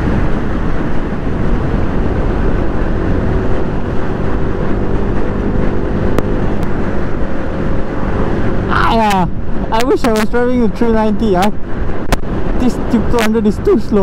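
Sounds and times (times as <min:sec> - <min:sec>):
motorcycle engine running: 0:00.0 - 0:10.8
wind rush on microphone: 0:00.0 - 0:14.0.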